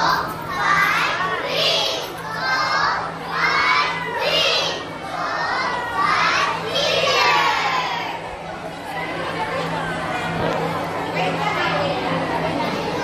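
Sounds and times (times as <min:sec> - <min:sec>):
children chanting a yell: 0:00.0 - 0:08.3.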